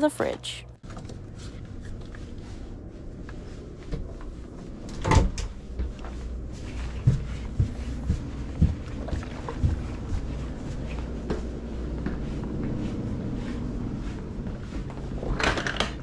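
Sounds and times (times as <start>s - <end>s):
footsteps on wooden stairs: 5.7s - 12.8s.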